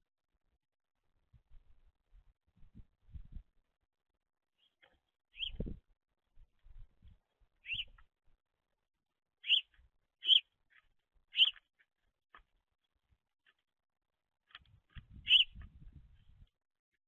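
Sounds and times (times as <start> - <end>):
sparrows chirping: 4.6 - 5.7, 7.6 - 8.0, 9.4 - 11.8, 15.2 - 15.7.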